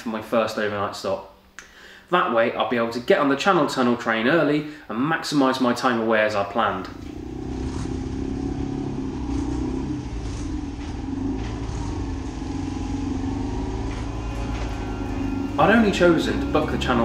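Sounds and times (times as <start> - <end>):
motorcycle engine running: 6.8 - 17.0.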